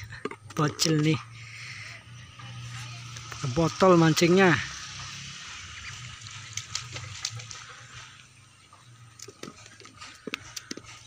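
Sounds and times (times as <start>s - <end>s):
soft water hiss: 1.3s - 9.7s.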